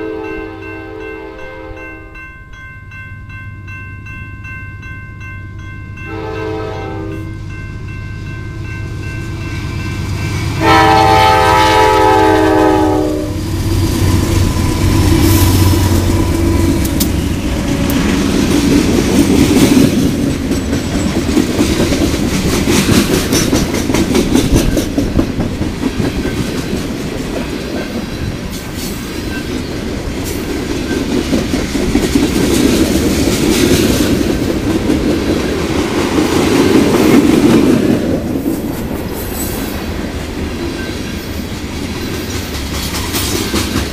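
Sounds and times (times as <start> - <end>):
train horn: 0.0 - 2.2, 6.1 - 7.4, 10.2 - 13.5
locomotive engines rumbling: 5.6 - 43.9
wheels clacking over rail joints: 13.7 - 43.9.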